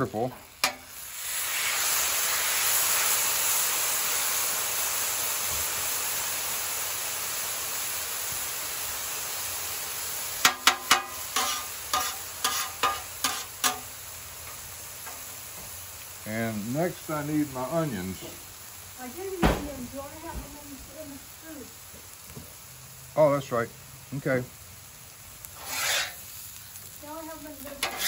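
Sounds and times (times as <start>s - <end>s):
rice sizzling on a griddle: 0.0s - 28.0s
metal spatula clinking on griddle: 0.6s - 0.8s, 10.4s - 13.9s, 27.8s - 28.0s.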